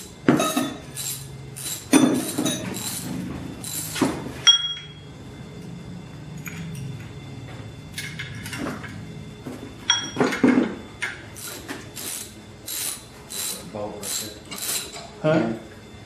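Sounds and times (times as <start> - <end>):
ringing metal clinks: 4.4 - 5.0, 9.9 - 10.2
hand ratchet clicking: 11.4 - 15.1.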